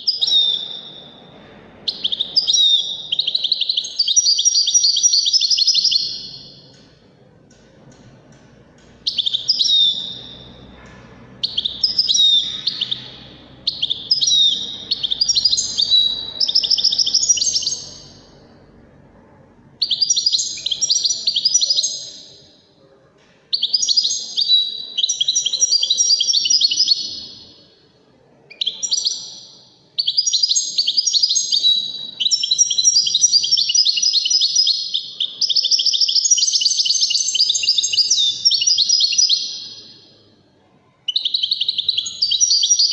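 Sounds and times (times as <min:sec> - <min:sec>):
goldfinch singing: 0:09.0 - 0:10.7, 0:11.4 - 0:18.3.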